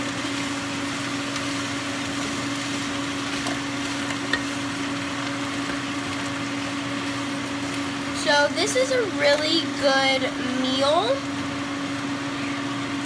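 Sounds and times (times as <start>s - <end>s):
food sizzling in frying pan: 0.0s - 13.0s
spatula tapping pan: 3.4s - 4.6s.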